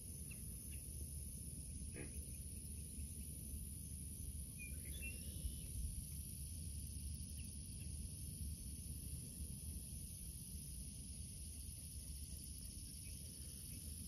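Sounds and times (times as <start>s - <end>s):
faint bird chirps: 0.1s - 1.0s, 1.7s - 3.6s, 4.4s - 5.9s.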